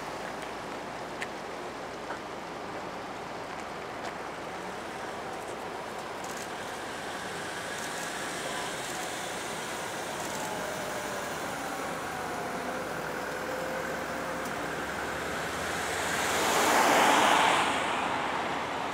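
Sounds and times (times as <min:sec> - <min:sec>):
traffic hum: 0:00.0 - 0:18.9
car passing close by: 0:13.1 - 0:18.9.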